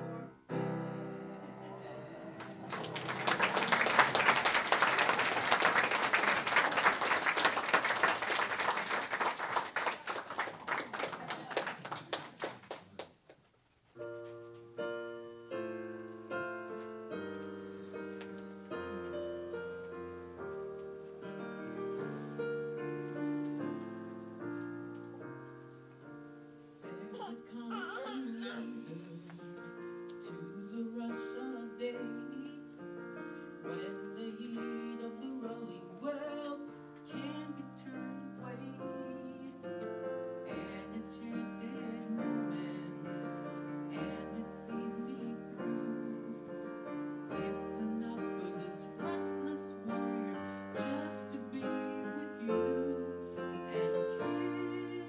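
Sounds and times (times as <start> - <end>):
piano notes and chords: 0.0 - 6.6, 14.0 - 55.0
audience applauding: 2.4 - 13.4.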